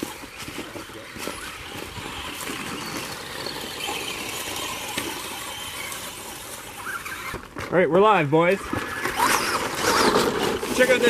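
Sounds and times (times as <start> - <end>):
rc car motors whining: 0.0 - 7.8, 8.4 - 11.0
tyres scrabbling over dirt: 0.0 - 11.0.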